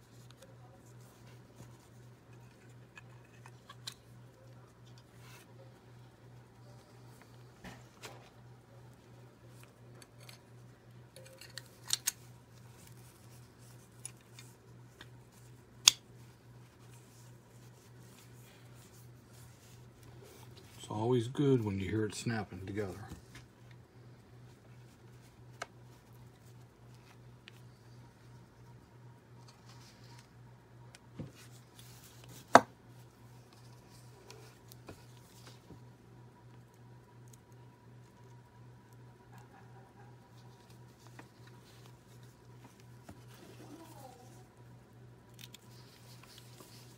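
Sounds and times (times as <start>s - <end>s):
faint low hum: 0.0s - 46.9s
sharp plastic snap: 15.8s - 16.0s.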